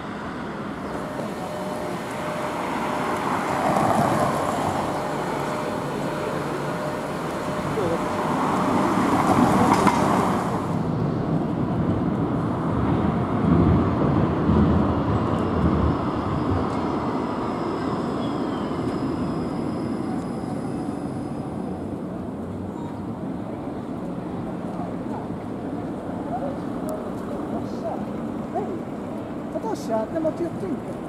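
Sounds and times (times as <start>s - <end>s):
tram rumbling over rails: 0.0s - 31.0s.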